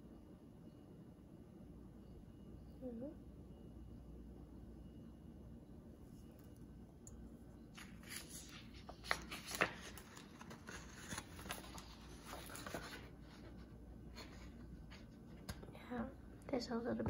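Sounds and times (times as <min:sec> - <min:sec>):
paper sheets rustling: 0:07.7 - 0:15.5.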